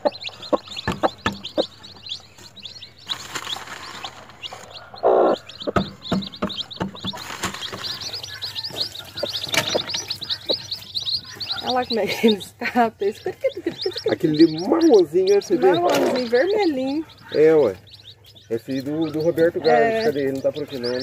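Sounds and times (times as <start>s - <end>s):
hen pecking on wooden floor: 0.0s - 11.8s
chicks peeping: 0.0s - 21.0s.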